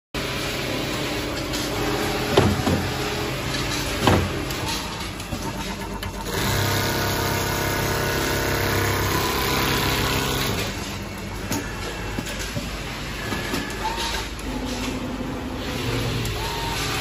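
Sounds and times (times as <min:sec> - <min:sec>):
sewing machine running: 0:00.2 - 0:10.9.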